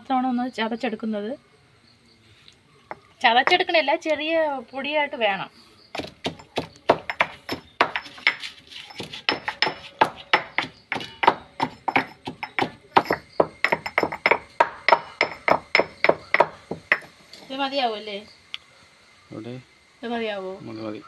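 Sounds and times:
pounding chillies into powder: 0:06.0 - 0:17.1.

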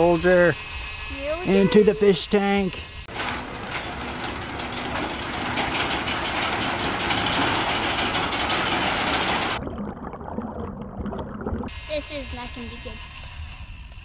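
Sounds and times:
winch motor and gears whirring: 0:00.0 - 0:09.6.

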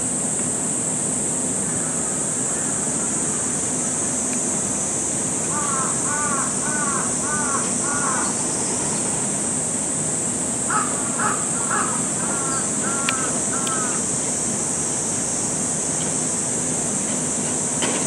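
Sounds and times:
crow cawing: 0:05.5 - 0:08.4, 0:10.7 - 0:14.1.

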